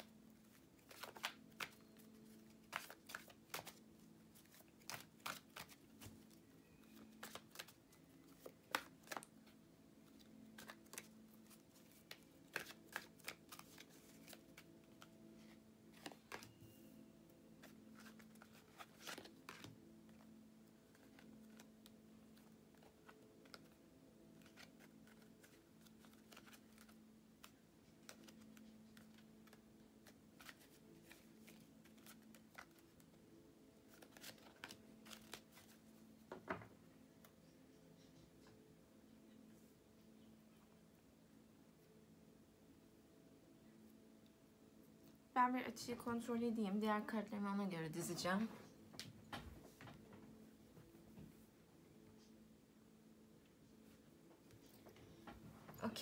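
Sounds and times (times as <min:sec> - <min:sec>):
cards being shuffled: 0:00.0 - 0:16.7, 0:17.6 - 0:20.3, 0:20.9 - 0:33.2, 0:33.9 - 0:35.9
faint steady hum: 0:00.0 - 0:56.0.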